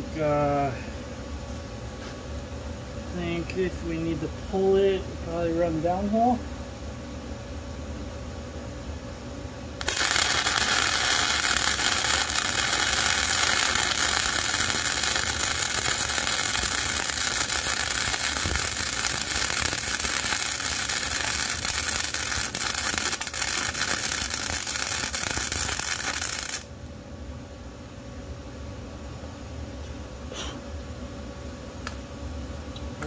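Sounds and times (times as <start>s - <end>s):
welding arc crackling: 9.8s - 26.7s.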